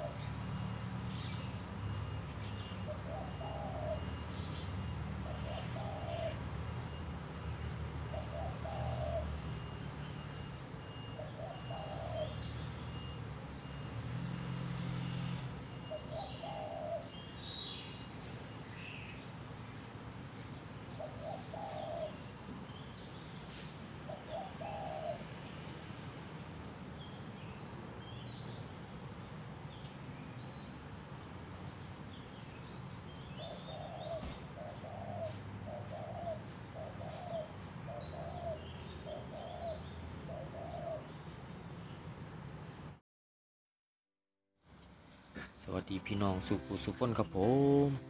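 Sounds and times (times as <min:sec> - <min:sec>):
dove cooing: 0:00.0 - 0:00.3, 0:02.8 - 0:04.3, 0:05.2 - 0:06.6, 0:08.0 - 0:09.6, 0:11.0 - 0:12.4, 0:15.8 - 0:17.3, 0:20.9 - 0:22.3, 0:24.1 - 0:25.3, 0:33.4 - 0:41.3.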